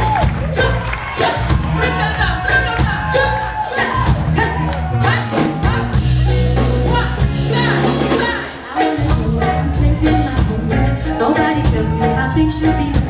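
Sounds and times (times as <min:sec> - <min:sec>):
drum kit beat: 0:00.0 - 0:13.0
live band playing: 0:00.0 - 0:13.0
woman singing: 0:06.9 - 0:13.0.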